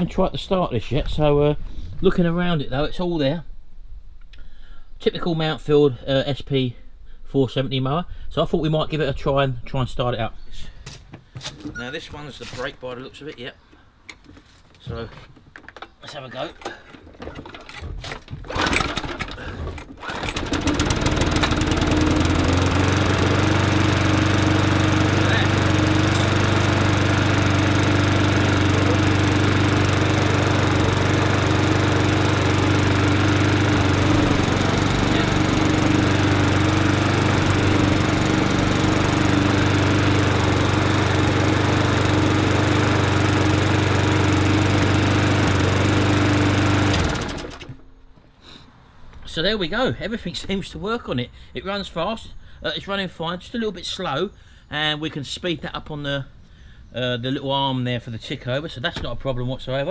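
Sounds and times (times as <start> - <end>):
lawnmower engine running: 18.4 - 47.9.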